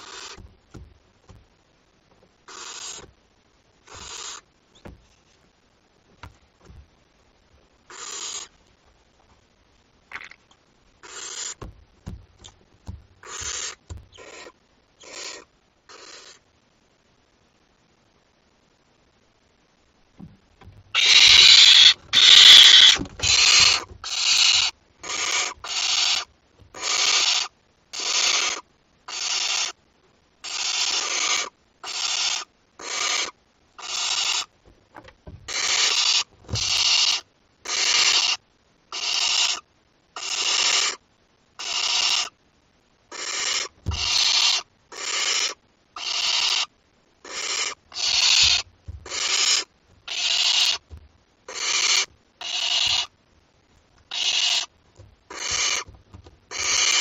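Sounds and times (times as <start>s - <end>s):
owlets hissing begging calls: 3.9s - 4.4s, 7.9s - 8.5s, 13.2s - 16.4s, 21.0s - 29.7s, 43.2s - 50.8s, 51.5s - 53.1s, 54.1s - 54.7s, 55.3s - 55.9s.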